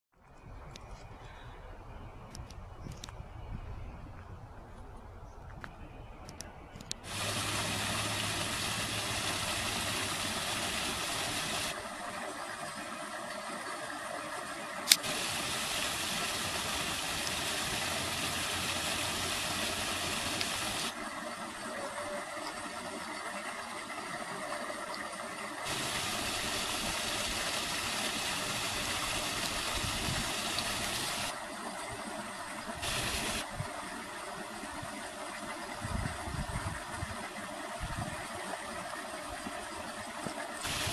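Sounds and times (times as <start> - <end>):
waterfall splashing into pool: 7.1 - 13.0, 14.8 - 21.0, 25.6 - 31.4, 32.8 - 33.5, 40.6 - 40.9.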